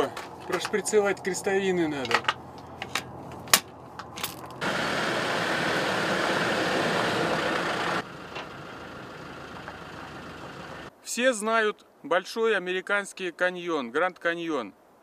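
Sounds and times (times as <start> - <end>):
distant engine: 0.2 - 10.9
vehicle driving on gravel: 2.0 - 10.9.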